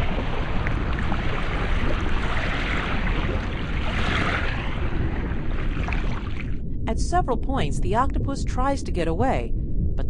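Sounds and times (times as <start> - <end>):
water rushing and splashing: 0.0 - 6.6.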